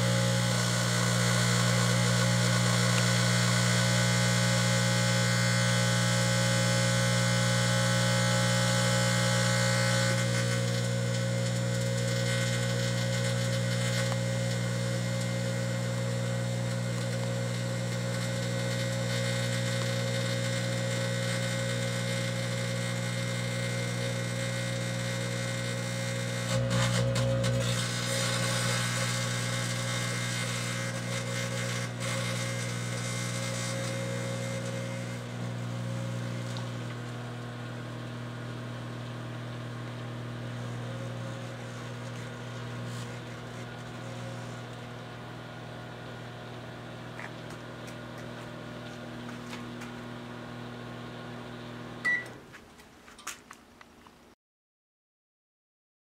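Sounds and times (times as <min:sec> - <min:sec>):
crackling electrical arcing buzz: 0:00.0 - 0:52.0
microwave oven humming: 0:00.0 - 0:52.5
microwave beep: 0:52.0 - 0:52.4.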